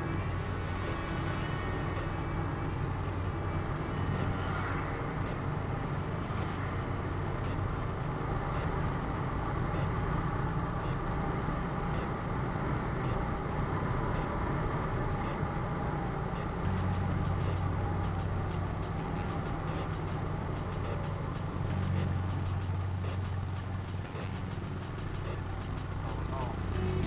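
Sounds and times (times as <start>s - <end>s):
motorcycle engine running: 0.0s - 9.5s, 16.6s - 27.0s
road noise: 0.0s - 27.0s.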